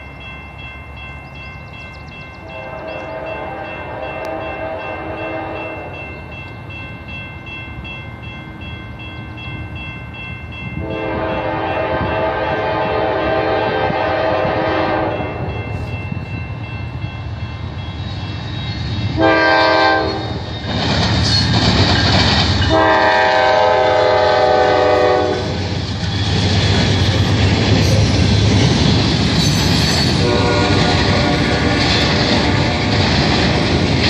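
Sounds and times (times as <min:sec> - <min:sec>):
locomotive air horn: 0:02.4 - 0:05.9, 0:10.8 - 0:15.4, 0:19.2 - 0:20.4, 0:22.7 - 0:25.6, 0:30.2 - 0:32.9
locomotive rumble: 0:10.6 - 0:34.0
train wheels clattering on rails: 0:10.7 - 0:34.0.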